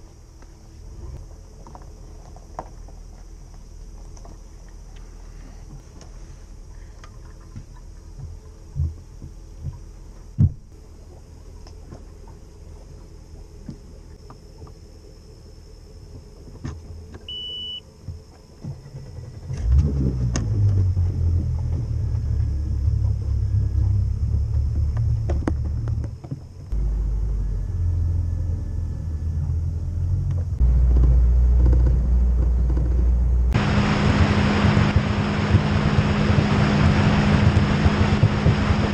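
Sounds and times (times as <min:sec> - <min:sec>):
engine running: 0:00.0 - 0:38.9
short electronic beep: 0:17.3 - 0:17.8.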